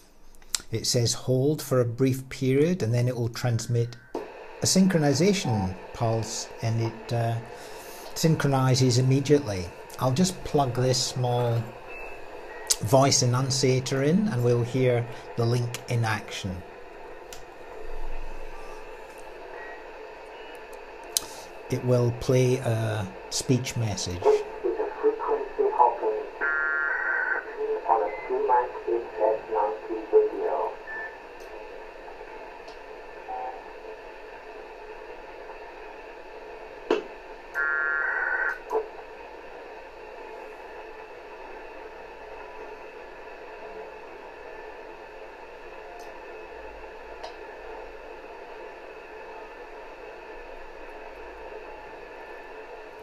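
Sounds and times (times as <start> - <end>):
radio receiver hiss: 2.3 - 53.0
voice over radio: 21.7 - 31.1.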